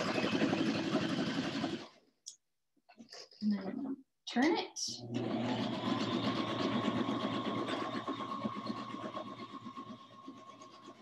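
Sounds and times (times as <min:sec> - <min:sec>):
sewing machine motor hum: 0:00.0 - 0:02.0, 0:05.0 - 0:11.0.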